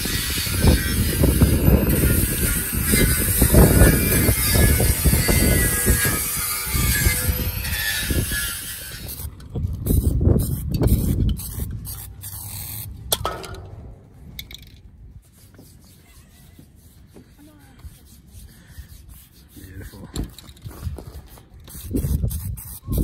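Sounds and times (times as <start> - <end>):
angle grinder with wire wheel: 0.0 - 9.4.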